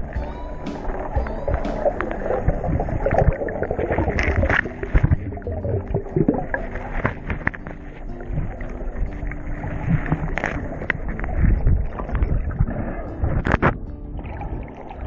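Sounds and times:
knocks and splashes: 0.0s - 7.8s.

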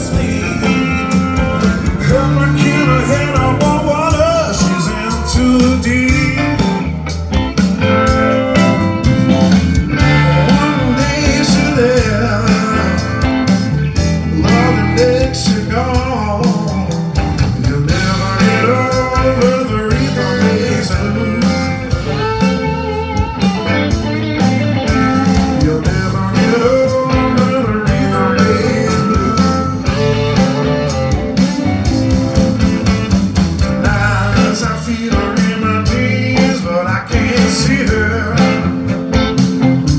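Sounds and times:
blues-rock band playing: 0.0s - 39.9s.

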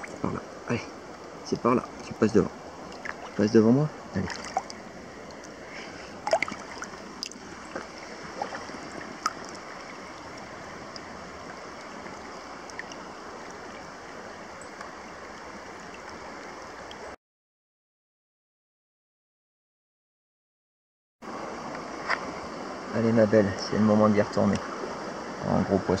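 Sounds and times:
small water splashes: 0.0s - 0.4s, 1.0s - 17.1s
water rushing over stones: 0.0s - 17.2s.

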